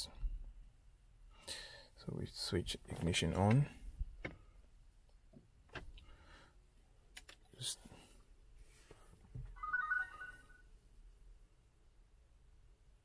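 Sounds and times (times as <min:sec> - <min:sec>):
electronic chime beeps: 0:09.6 - 0:10.7.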